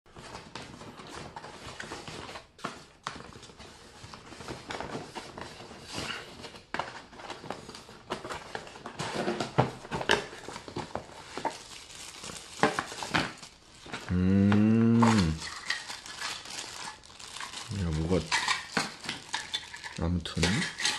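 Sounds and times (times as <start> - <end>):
packaging crinkling: 3.2 - 20.9
low drawn-out vocal sound: 14.1 - 15.4.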